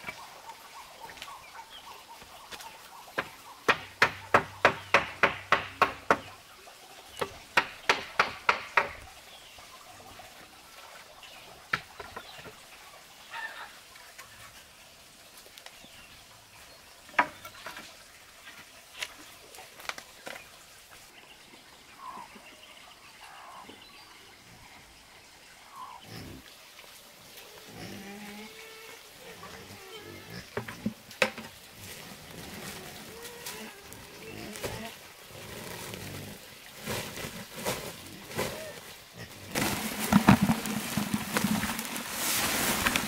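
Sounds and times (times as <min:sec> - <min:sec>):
sharp knocks: 0:03.2 - 0:06.3, 0:07.6 - 0:09.0.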